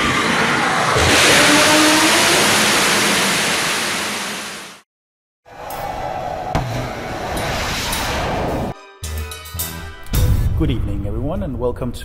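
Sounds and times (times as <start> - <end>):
rocket engine roaring: 0.0 - 4.8
music: 8.7 - 11.2.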